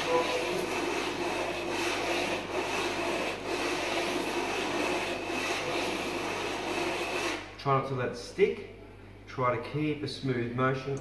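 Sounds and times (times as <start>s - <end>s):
metal rubbed on wet sandpaper: 0.0s - 7.5s.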